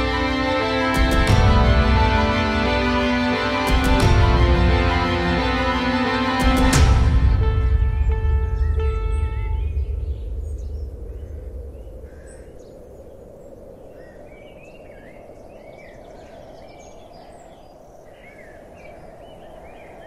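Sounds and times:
music track: 0.0 - 11.2
birds chirping: 7.3 - 20.0.

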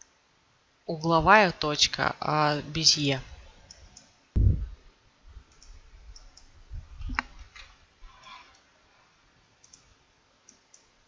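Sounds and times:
computer mouse clicking: 5.5 - 6.5, 9.6 - 9.9, 10.5 - 10.9.

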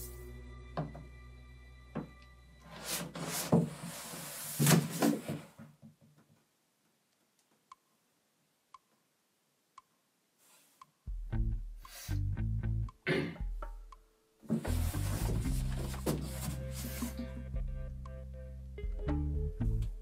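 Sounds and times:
cardboard scraping and rustling: 2.8 - 5.6, 14.5 - 17.2
music with heavy bass: 11.1 - 13.9, 14.7 - 16.0, 16.6 - 20.0.

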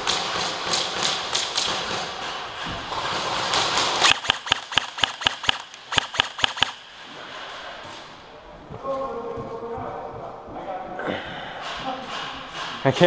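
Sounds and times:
airsoft guns firing: 0.0 - 6.9.

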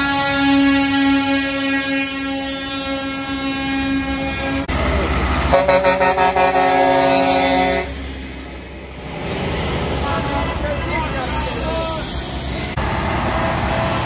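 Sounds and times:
truck air horn blasts: 0.0 - 4.7, 5.5 - 8.0
truck engine: 0.0 - 14.0.

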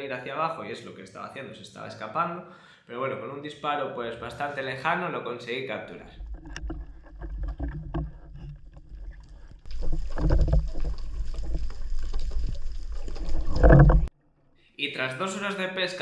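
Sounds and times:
underwater rumble of moving water: 6.1 - 14.1.

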